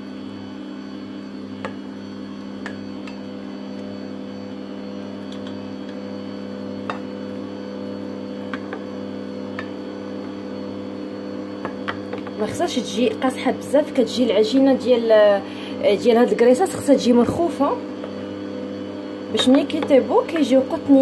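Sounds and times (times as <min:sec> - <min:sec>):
stand mixer motor hum: 0:00.0 - 0:21.0.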